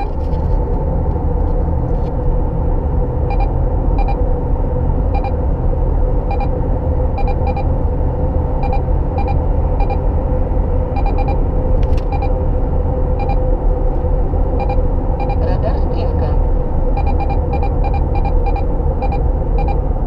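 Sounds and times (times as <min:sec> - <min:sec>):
road and engine rumble: 0:00.0 - 0:20.0
radar detector double beeps: 0:03.3 - 0:04.2, 0:06.3 - 0:06.5, 0:07.2 - 0:07.6, 0:08.6 - 0:10.0, 0:11.0 - 0:11.4, 0:17.0 - 0:19.8.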